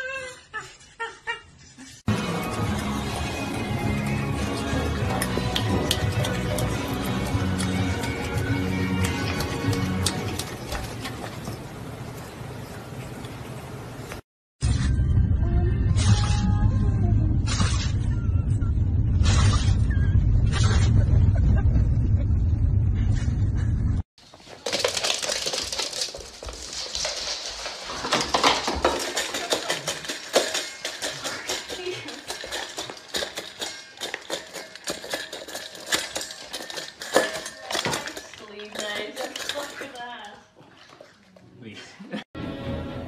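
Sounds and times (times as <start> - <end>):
dog eating from metal bowl: 2.1 - 11.7, 24.3 - 41.4.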